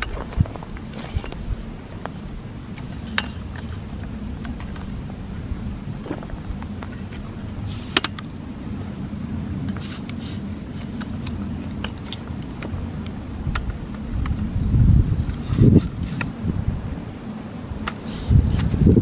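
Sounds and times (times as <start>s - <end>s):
wind rumble on microphone: 0.0s - 19.0s
tripod clicks and clinks: 7.9s - 8.3s, 9.7s - 14.5s.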